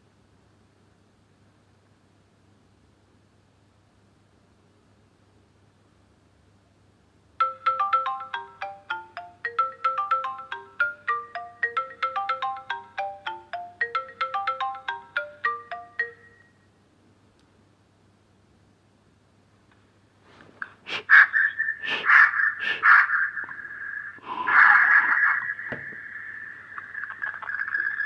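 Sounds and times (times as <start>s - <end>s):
phone ringtone melody: 7.4s - 16.6s.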